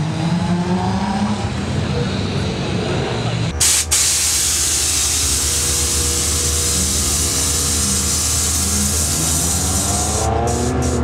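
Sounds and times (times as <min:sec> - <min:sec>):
loud steady hiss: 0:03.6 - 0:11.0
car engine running: 0:04.1 - 0:11.0.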